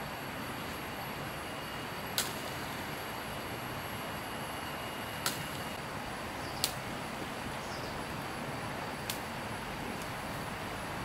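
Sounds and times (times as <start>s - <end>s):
faint high steady tones: 0.0s - 6.6s
background hiss: 0.0s - 11.0s
leaves snapping off shrub: 2.2s - 2.6s, 5.2s - 5.6s, 6.6s - 6.9s, 9.0s - 9.3s.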